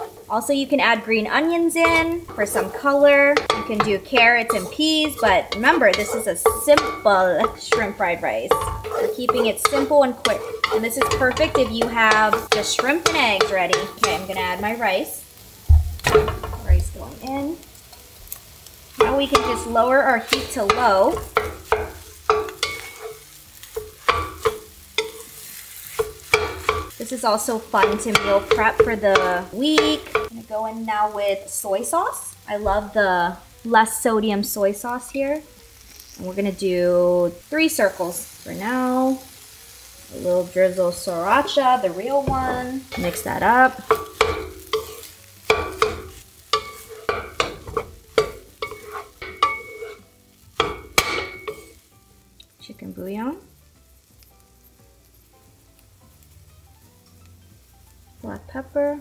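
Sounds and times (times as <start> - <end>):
faint sizzle: 0.0 - 59.0
spatula knocking and scraping pan: 1.2 - 14.9, 15.6 - 18.3, 18.9 - 30.3, 41.3 - 51.8.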